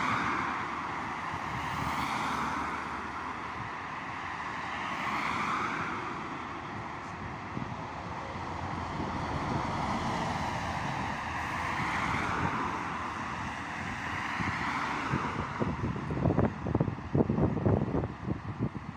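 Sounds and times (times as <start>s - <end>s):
wind buffeting microphone: 6.1s - 18.9s.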